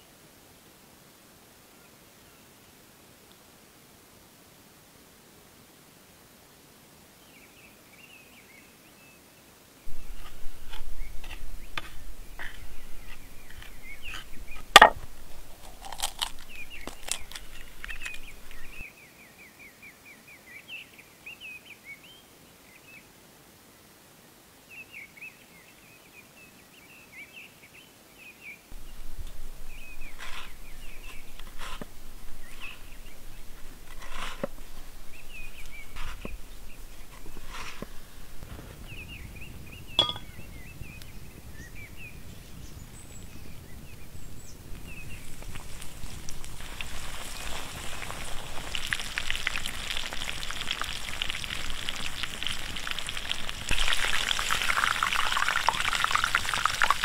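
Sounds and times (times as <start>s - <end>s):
small birds chirping: 7.2s - 23.1s, 24.7s - 57.0s
food handled on wooden board: 9.9s - 18.8s, 28.8s - 38.6s
sharp knock: 40.0s - 40.3s.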